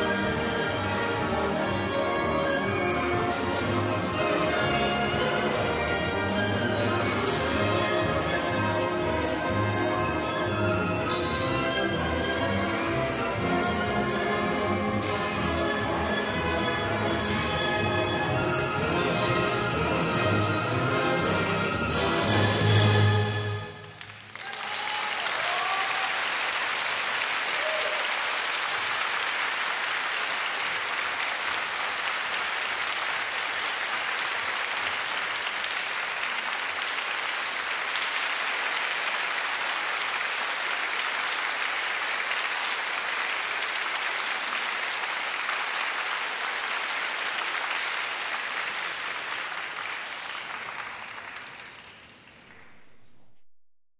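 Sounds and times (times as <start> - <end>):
audience applauding: 23.8 - 52.9.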